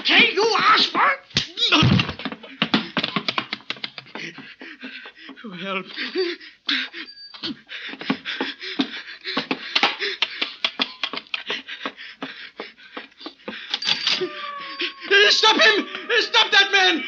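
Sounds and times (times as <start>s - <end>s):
fistfight blows and scuffling: 0.0s - 6.4s, 7.5s - 14.0s
men grunting and gasping: 1.9s - 16.3s.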